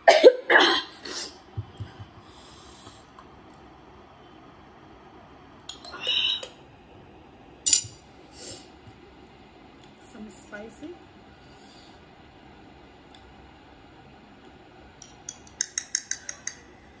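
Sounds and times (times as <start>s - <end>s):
woman coughing and snorting: 0.0s - 1.3s
hissing breath: 8.3s - 8.8s.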